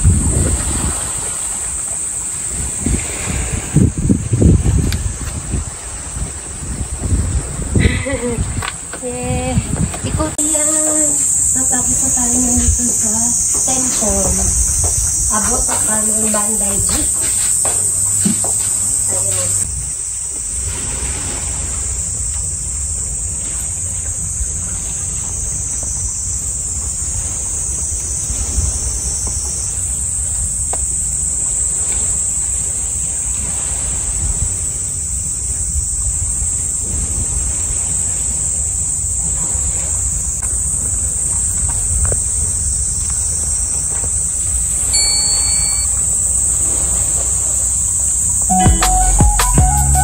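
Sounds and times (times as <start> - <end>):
wind buffeting microphone: 0.0 - 19.8
insects chorus: 0.0 - 49.0.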